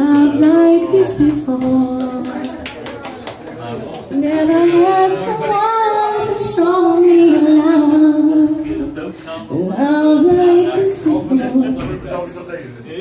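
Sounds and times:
woman singing into a microphone: 0:00.0 - 0:02.4, 0:04.2 - 0:12.0.

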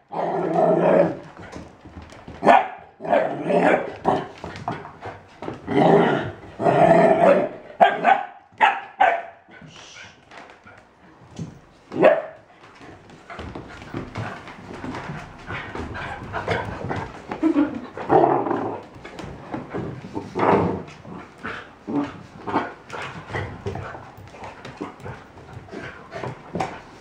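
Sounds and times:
puppies growling: 0:13.4 - 0:26.7.

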